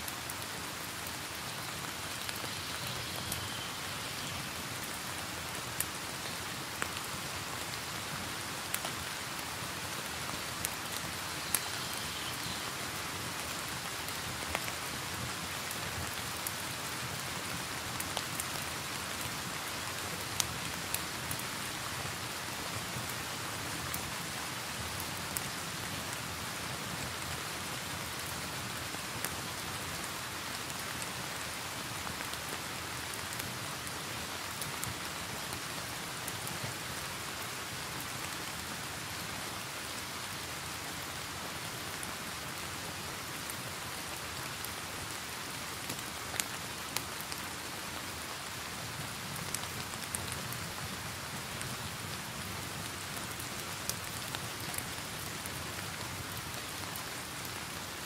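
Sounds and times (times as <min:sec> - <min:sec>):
steady rain hiss: 0:00.0 - 0:58.0
fire crackling and popping: 0:45.8 - 0:46.5, 0:53.2 - 0:56.3.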